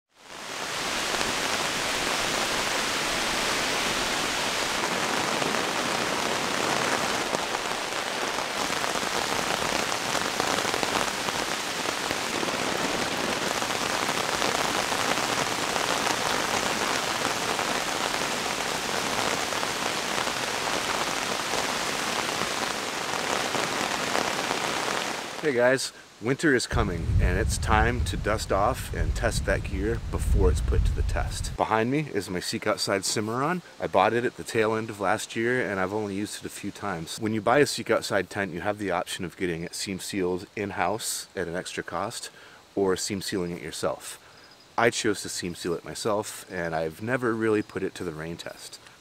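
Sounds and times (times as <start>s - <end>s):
steady rain falling: 0.1s - 49.0s.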